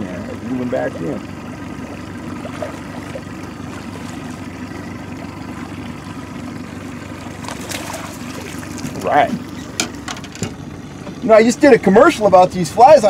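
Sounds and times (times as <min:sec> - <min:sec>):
boat motor running: 0:00.0 - 0:13.0
fish splashing in water: 0:01.2 - 0:10.7.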